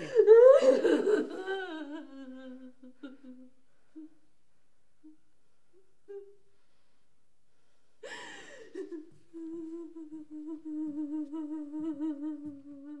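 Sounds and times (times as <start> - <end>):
woman's breathy cry: 8.0 - 9.1
woman humming low note: 9.3 - 13.0.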